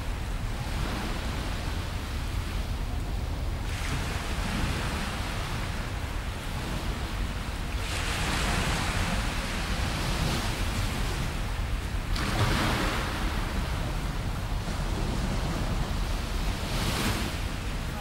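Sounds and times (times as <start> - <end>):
small waves breaking on beach: 3.6 - 18.0.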